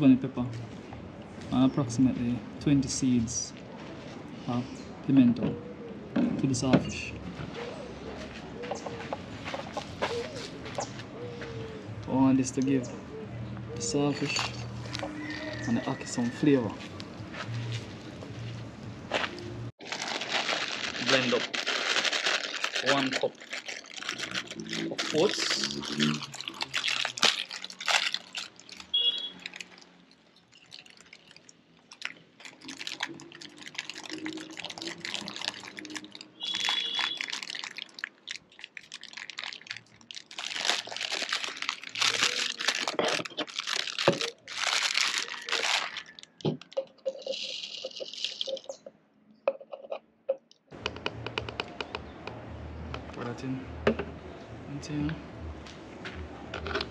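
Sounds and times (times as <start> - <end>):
dry oats rustling and rattling: 19.8 - 48.8
plastic bag handled: 19.8 - 48.8.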